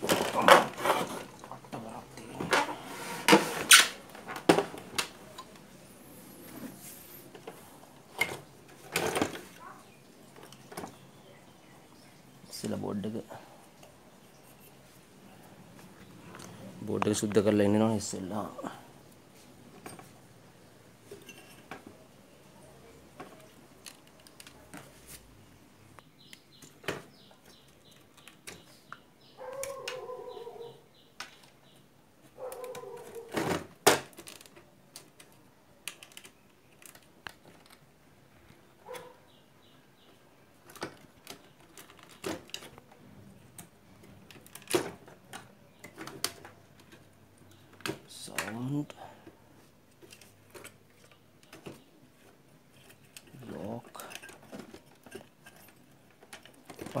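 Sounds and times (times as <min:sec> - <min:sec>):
hands handling electronics: 0:00.0 - 0:11.2, 0:23.1 - 0:25.4, 0:31.0 - 0:39.1, 0:40.0 - 0:57.0.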